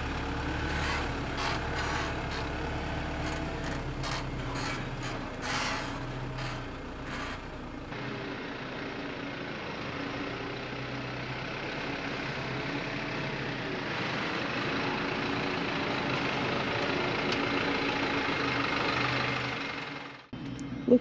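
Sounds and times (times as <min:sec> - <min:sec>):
tyres on dirt: 0:00.0 - 0:07.9
truck diesel engine at low revs: 0:00.0 - 0:21.0.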